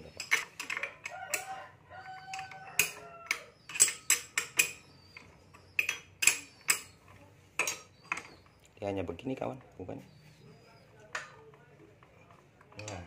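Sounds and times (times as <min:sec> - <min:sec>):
wrench clinking on metal nut: 0:00.1 - 0:04.9, 0:05.7 - 0:07.0.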